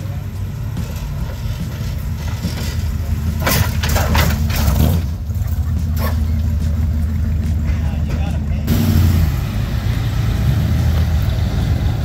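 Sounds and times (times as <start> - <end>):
car engine rumbling: 0.0 - 12.0.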